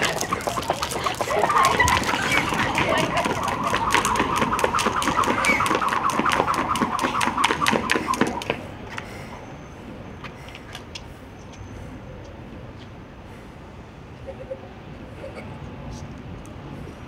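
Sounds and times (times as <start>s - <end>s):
jump ropes slapping concrete: 0.0s - 9.1s
city background: 0.0s - 17.0s.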